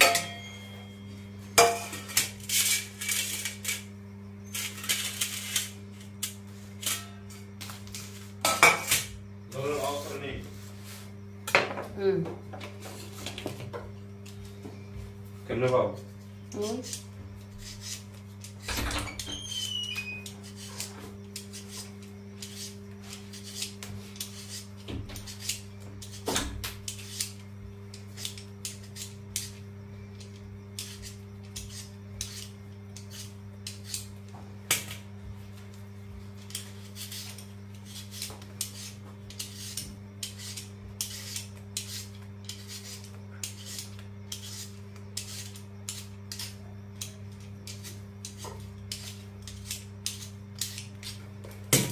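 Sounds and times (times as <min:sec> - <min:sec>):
steady low hum: 0:00.0 - 0:51.9
peeler scraping potato skin: 0:01.9 - 0:10.1, 0:16.5 - 0:29.6, 0:30.2 - 0:34.1, 0:36.4 - 0:51.3.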